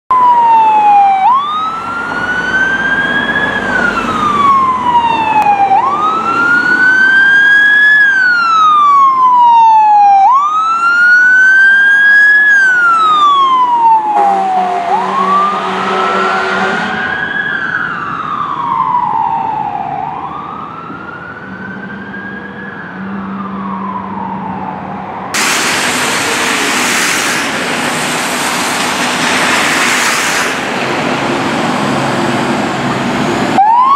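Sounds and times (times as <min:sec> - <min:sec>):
fire truck siren wailing: 0:00.1 - 0:33.9
loud steady rushing noise: 0:25.3 - 0:33.6.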